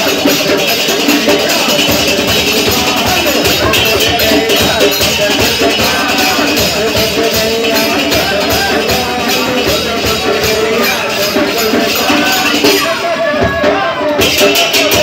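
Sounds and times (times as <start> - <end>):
group singing a devotional chant: 0.0 - 15.0
jingling hand cymbals: 0.0 - 15.0.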